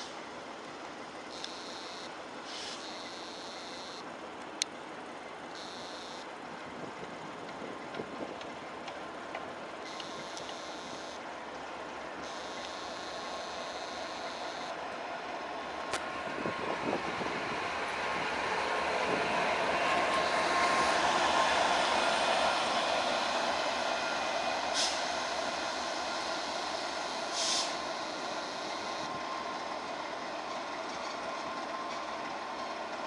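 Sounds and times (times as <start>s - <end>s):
air brake hisses: 2.4s - 3.0s, 24.7s - 25.2s, 27.2s - 28.8s
diesel locomotive rolling past: 6.3s - 33.0s.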